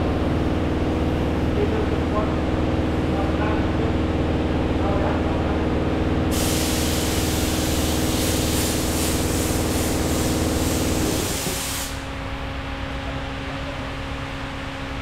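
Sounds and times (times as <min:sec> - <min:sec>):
shop machinery hum: 0:00.0 - 0:15.0
compressed air hissing: 0:06.3 - 0:12.2.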